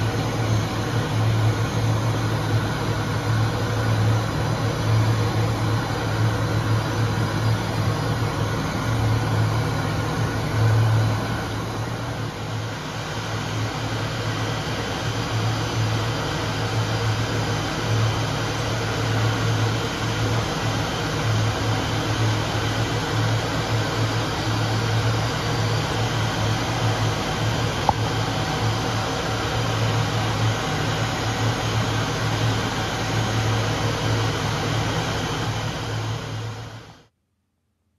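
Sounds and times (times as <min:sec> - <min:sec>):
mechanical drone with low hum: 0:00.0 - 0:37.1.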